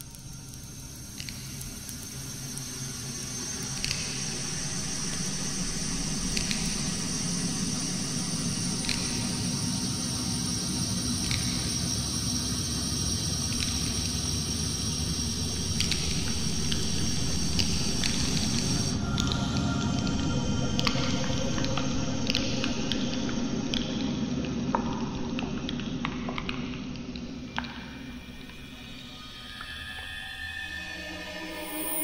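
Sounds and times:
low rumbling drone: 0:14.7 - 0:24.3
faint high sustained tone: 0:18.9 - 0:22.4, 0:27.9 - 0:32.0.

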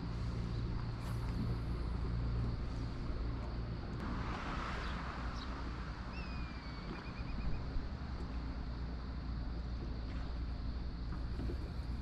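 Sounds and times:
low engine hum: 0:00.0 - 0:12.0
bird whistling: 0:06.1 - 0:07.6.

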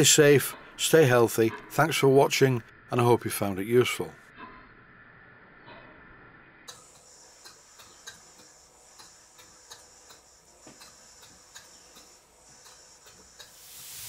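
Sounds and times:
model steam engine ticking: 0:06.7 - 0:14.0.

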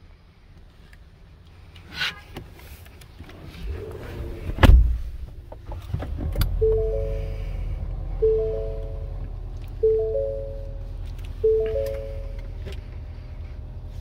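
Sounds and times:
steady chime tones: 0:06.6 - 0:07.5, 0:08.2 - 0:09.1, 0:09.8 - 0:12.4.

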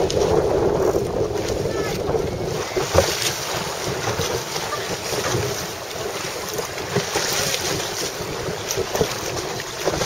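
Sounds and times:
small waves splashing: 0:00.0 - 0:10.0
wind buffeting microphone: 0:00.0 - 0:10.0.

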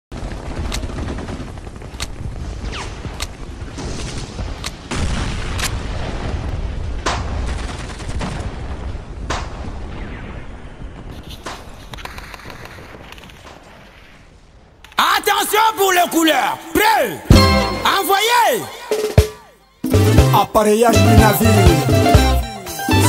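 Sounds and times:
gunshots and blasts: 0:00.1 - 0:14.8.

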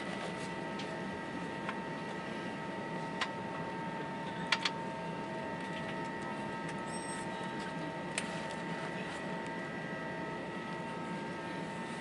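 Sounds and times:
aircraft cabin rumble: 0:00.0 - 0:12.0.

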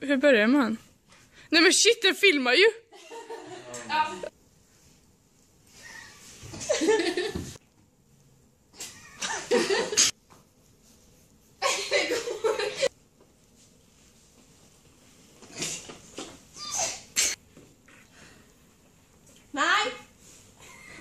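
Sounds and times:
laughter: 0:02.9 - 0:03.8, 0:06.5 - 0:07.6, 0:09.1 - 0:10.1, 0:11.6 - 0:12.9.

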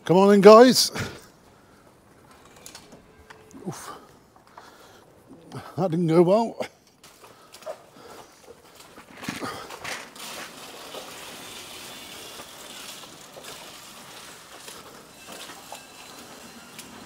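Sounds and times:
feed nuts pouring into trough: 0:09.3 - 0:17.0.

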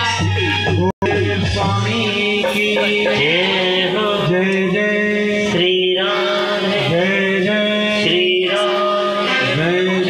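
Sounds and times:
man chanting through loudspeakers: 0:01.6 - 0:06.0.

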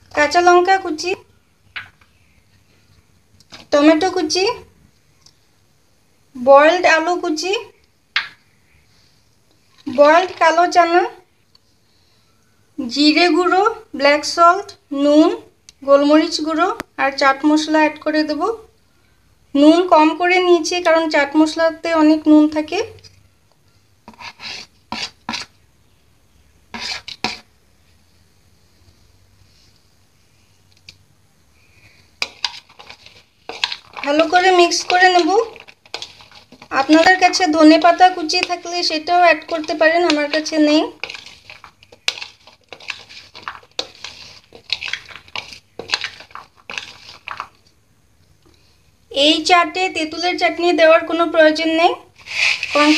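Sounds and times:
metal spoon scraping a plate: 0:26.7 - 0:27.5, 0:32.2 - 0:47.3.

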